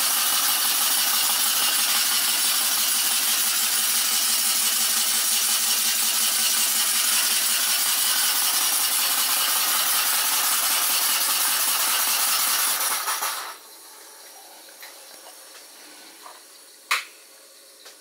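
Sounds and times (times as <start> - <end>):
steam engine hissing: 0.0 - 13.9.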